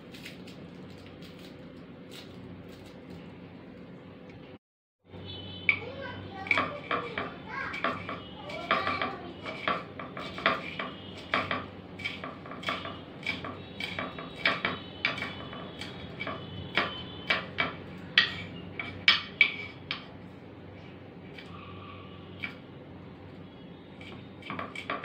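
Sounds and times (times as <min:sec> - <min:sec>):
knife chopping on wooden board: 0:06.5 - 0:20.1, 0:24.0 - 0:25.0.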